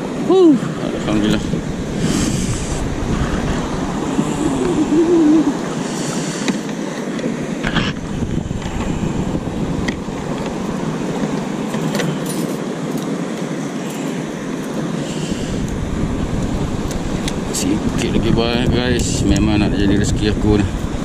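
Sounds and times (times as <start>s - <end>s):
wind buffeting microphone: 0.0s - 12.0s, 14.2s - 21.0s
water washing around kayak: 0.0s - 21.0s.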